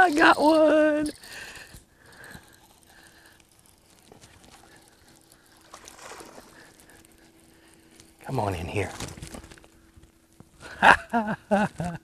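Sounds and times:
fishing reel clicks: 0.0s - 5.6s
water lapping: 0.0s - 8.5s.

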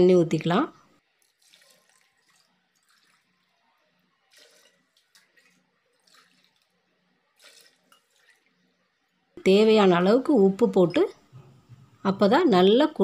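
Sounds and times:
water splashing: 1.0s - 8.9s.

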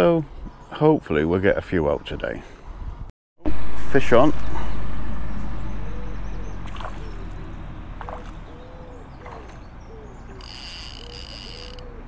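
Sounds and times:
low rumble on microphone: 2.9s - 10.2s
bird cooing: 5.6s - 12.0s
fishing reel drag clicking: 10.4s - 12.0s
rod and reel handling clicks: 10.4s - 12.0s.

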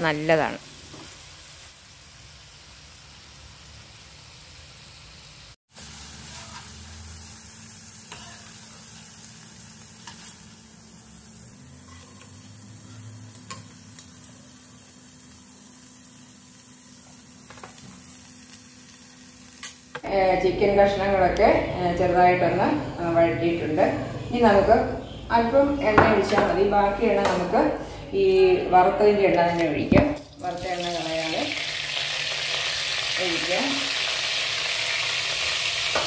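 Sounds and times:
chicken frying in oil: 0.7s - 19.5s, 30.3s - 36.0s.

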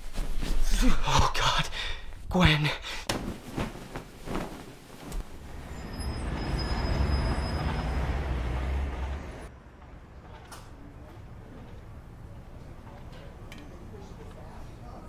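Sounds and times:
high squeal: 5.5s - 8.3s
heavy vehicle passing: 5.5s - 10.0s.

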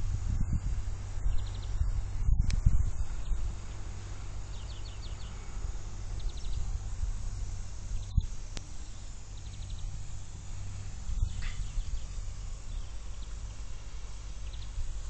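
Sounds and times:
wind on microphone: 0.0s - 15.0s
bird chirping: 1.2s - 1.9s, 4.4s - 5.5s, 6.1s - 6.8s, 7.9s - 10.1s, 10.9s - 15.0s.

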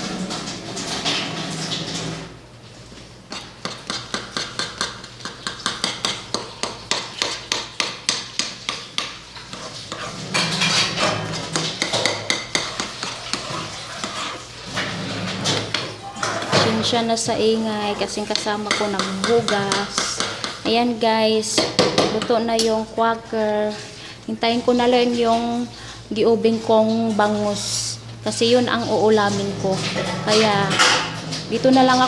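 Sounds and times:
metal spoon scraping a pan: 3.3s - 20.7s.

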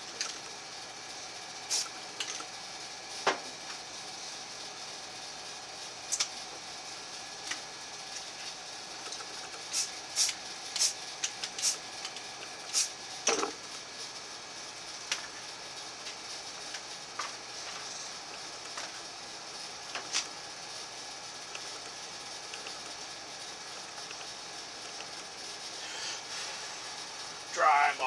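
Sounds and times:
steady background noise: 0.0s - 28.0s
spray paint hisses: 1.6s - 2.0s, 9.1s - 11.9s, 12.6s - 13.0s.

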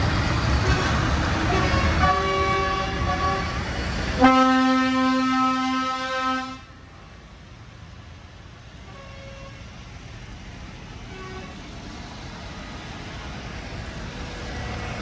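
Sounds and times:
long horn blast: 0.6s - 3.6s, 4.2s - 6.8s.

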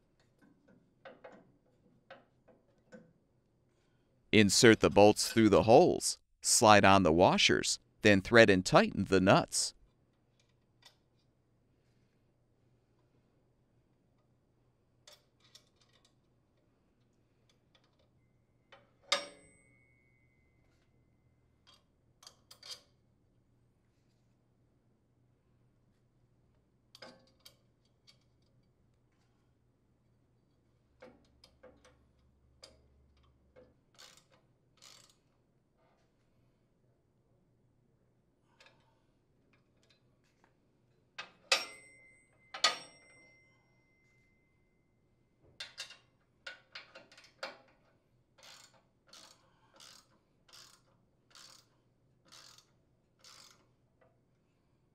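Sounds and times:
metal bolts and nuts clicking: 45.6s - 51.6s.

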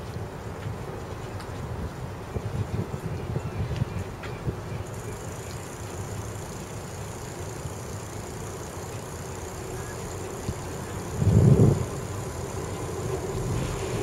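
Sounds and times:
road traffic rumble: 4.1s - 14.0s
louder low rumble: 11.2s - 14.0s.

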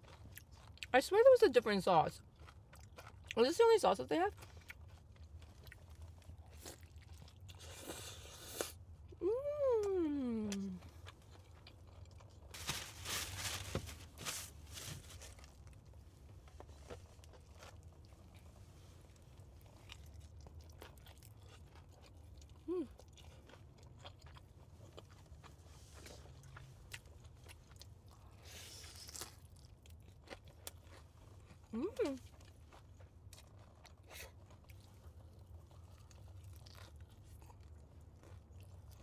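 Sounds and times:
chewing: 0.0s - 0.9s, 2.2s - 3.4s, 4.3s - 8.8s, 9.9s - 12.5s, 15.4s - 39.0s
crunching bites into fried chicken: 26.3s - 31.6s.

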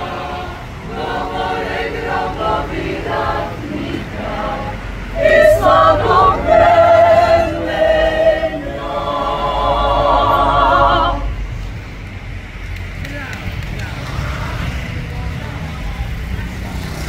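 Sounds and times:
mixed choir singing chords: 0.0s - 11.8s.

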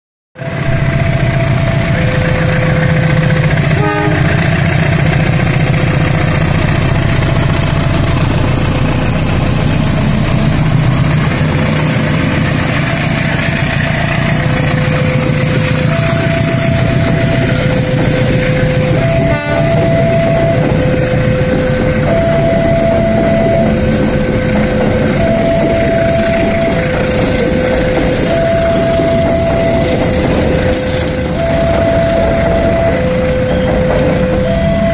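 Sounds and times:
locomotive engine rumble: 0.4s - 34.9s
level crossing two-tone signal: 10.4s - 24.0s, 24.6s - 34.9s.

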